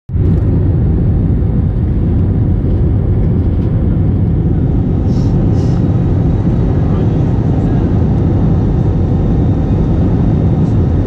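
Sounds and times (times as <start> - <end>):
jet engine cabin rumble: 0.1 - 11.0.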